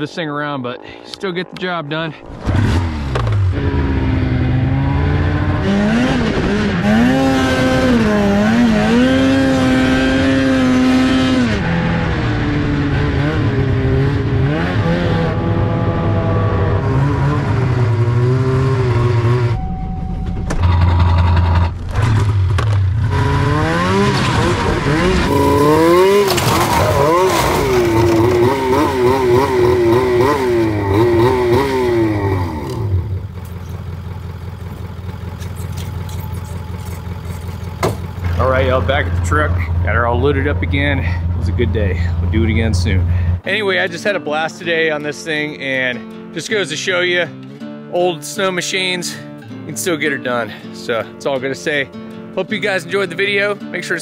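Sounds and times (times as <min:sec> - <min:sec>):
snowmobile engine revving: 0:00.0 - 0:19.6, 0:20.6 - 0:33.7.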